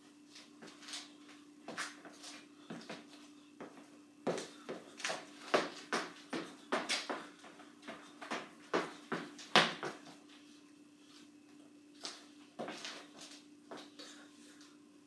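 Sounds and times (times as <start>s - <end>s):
steady hum: 0.0s - 15.0s
sneaker footfalls on hardwood floor: 2.7s - 10.2s.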